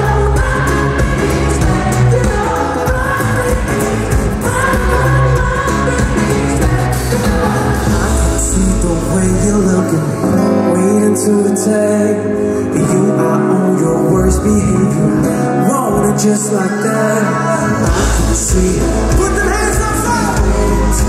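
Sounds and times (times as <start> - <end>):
live pop band with singing: 0.0 - 21.0.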